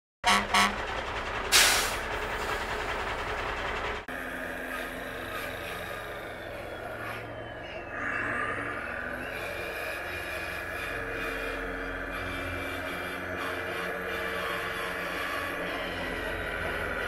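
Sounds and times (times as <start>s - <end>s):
low machine drone: 0.2s - 17.0s
model construction vehicles running: 0.3s - 17.0s
air brake hiss: 1.5s - 2.1s.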